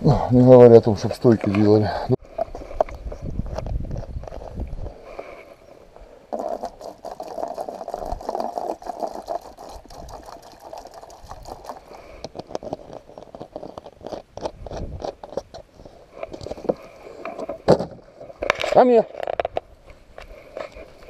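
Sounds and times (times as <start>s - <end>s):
plastic bottle crackling: 6.3s - 15.4s.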